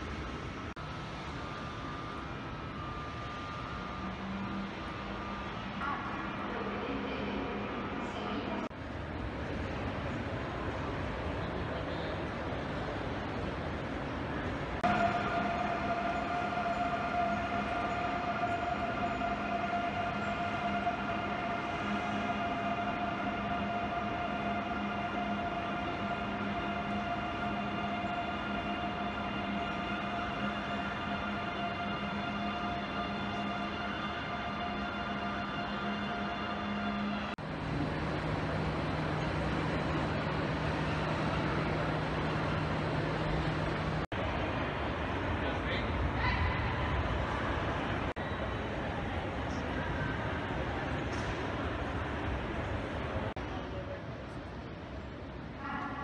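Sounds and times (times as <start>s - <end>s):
electric train humming: 0.0s - 56.0s
railway station ambience: 0.0s - 56.0s
held high note: 14.8s - 37.3s.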